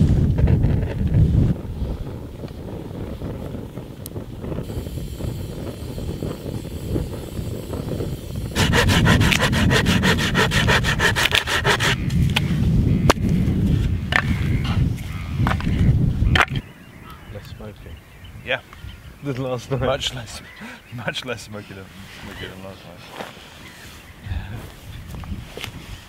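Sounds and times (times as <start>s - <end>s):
hand saw cutting wood: 8.6s - 12.0s.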